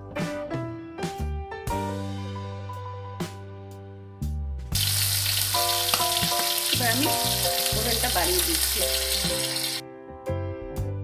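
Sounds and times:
soft background music: 0.0s - 11.0s
fish sizzling in hot oil: 4.8s - 9.8s.

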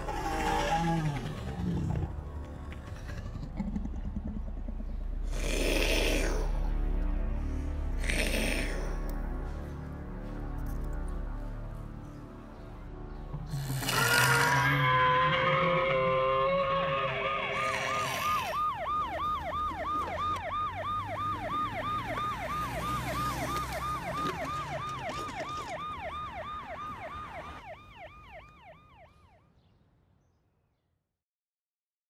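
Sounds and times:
toy ambulance siren wailing: 14.3s - 29.4s.

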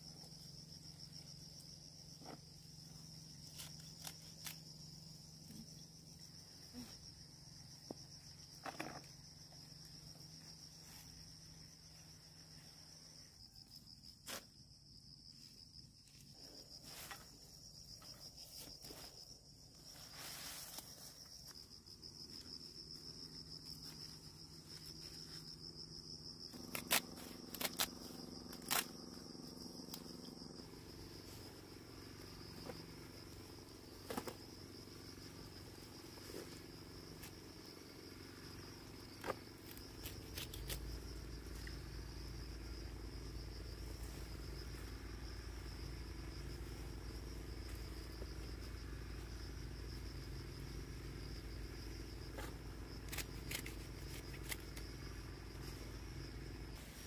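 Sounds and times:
insects chirring: 0.0s - 57.0s
knife snapping through stems: 26.6s - 29.0s.

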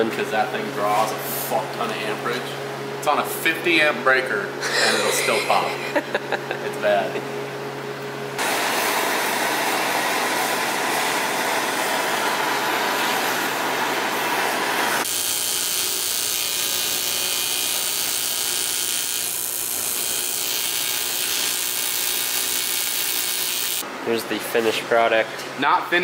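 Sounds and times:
arc welder buzzing: 8.4s - 23.8s
gas torch hissing: 8.4s - 23.8s.

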